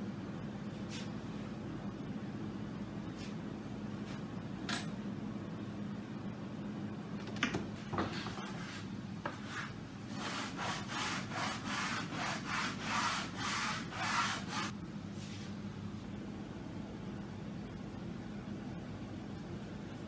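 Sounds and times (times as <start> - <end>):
hand-sanding wood: 9.4 - 14.7.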